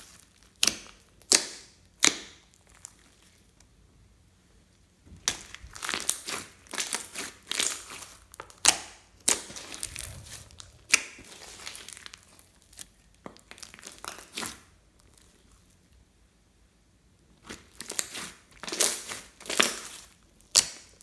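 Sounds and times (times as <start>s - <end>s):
slime squishing with sticky pops: 0.0s - 3.3s.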